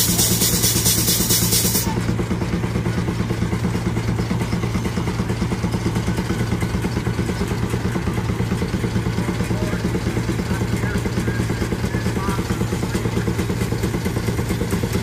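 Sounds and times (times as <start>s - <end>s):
steam engine exhaust chuffing: 0.0s - 15.0s.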